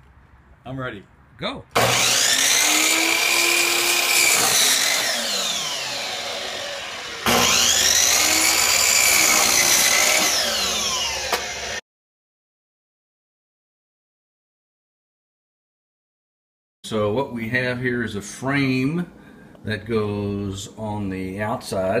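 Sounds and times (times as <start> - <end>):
miter saw whining and cutting wood: 1.8 - 11.8.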